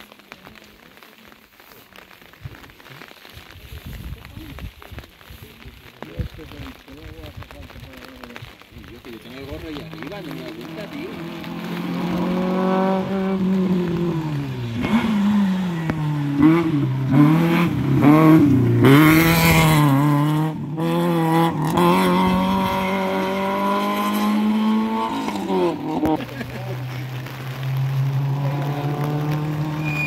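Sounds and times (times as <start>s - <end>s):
tyre noise on wet tarmac: 0.0s - 30.0s
rally car engine: 9.5s - 30.0s.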